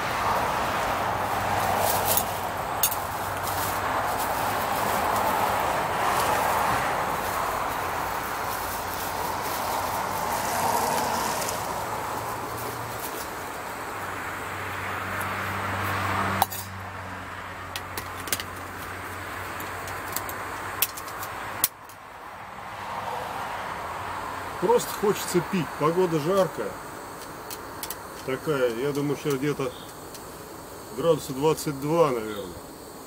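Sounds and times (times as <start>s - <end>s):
light metallic clinks: 2.0s - 3.1s, 16.4s - 16.8s
gas stove burner hissing: 24.6s - 33.0s.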